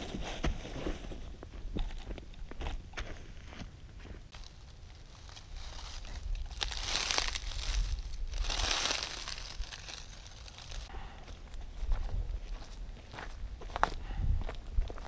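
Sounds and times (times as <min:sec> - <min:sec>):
dry leaves rustling: 0:04.3 - 0:10.9
wind rumble on microphone: 0:11.7 - 0:15.0.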